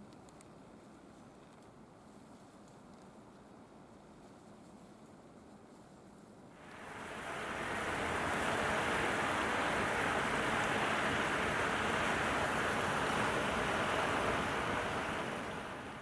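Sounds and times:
steady rushing noise: 6.6s - 16.0s.

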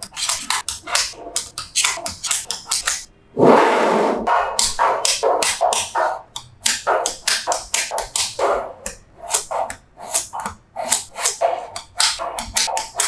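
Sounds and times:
magnetic balls clicking: 0.0s - 3.1s, 4.6s - 13.0s.

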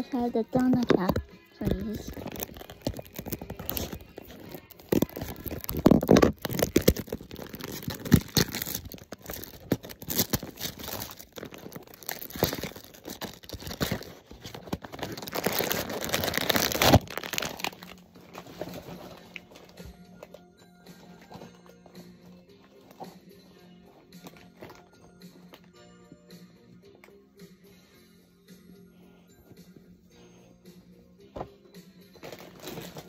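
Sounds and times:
cardboard and foil crinkling: 0.1s - 20.4s, 32.2s - 33.0s.

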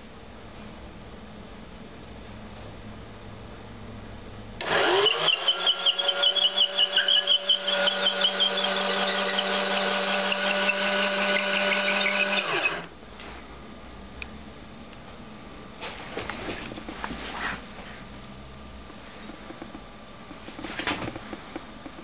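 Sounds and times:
electric drill whining: 4.6s - 12.9s.

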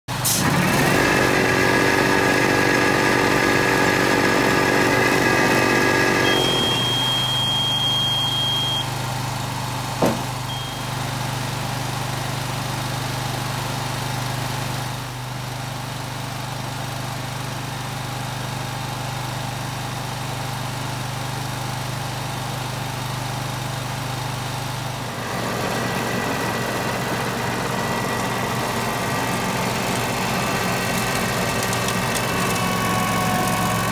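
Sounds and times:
ride-on mower engine running: 0.1s - 33.9s
brief high tone: 6.2s - 8.9s, 10.5s - 11.0s.

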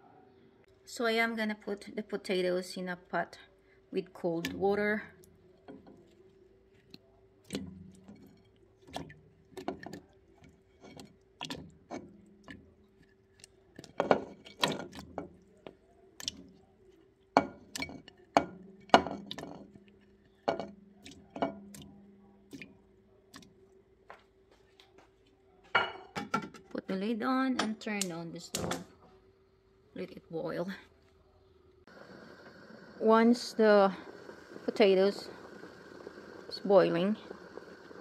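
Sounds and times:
faint steady hum: 26.7s - 38.0s.

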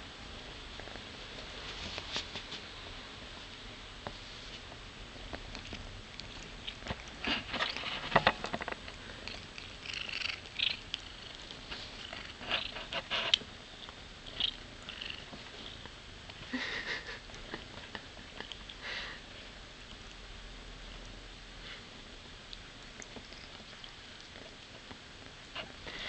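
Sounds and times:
cat chewing on fingers: 5.3s - 7.8s, 9.1s - 15.9s, 17.3s - 18.8s, 22.5s - 25.0s.

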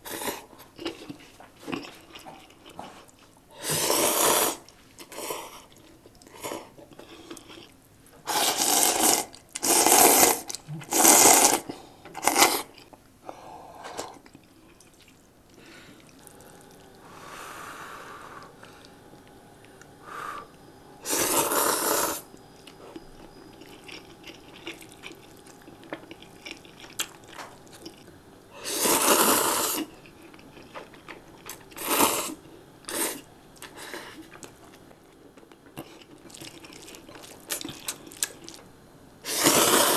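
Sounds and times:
quiet chewing: 0.2s - 3.4s, 4.6s - 17.1s, 18.3s - 28.2s, 28.8s - 38.8s
person slurping noodles: 3.6s - 5.5s, 8.3s - 12.7s, 21.0s - 22.3s, 28.6s - 29.9s, 31.8s - 33.2s, 39.3s - 39.9s.

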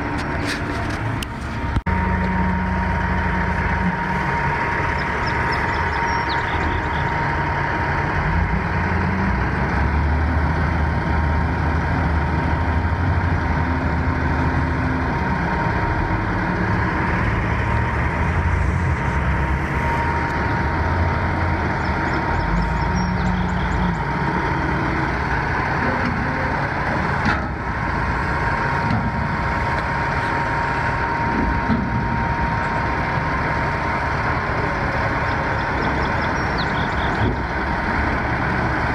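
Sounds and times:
diesel engine rumbling: 0.0s - 38.9s
constant high whine: 14.4s - 38.3s.

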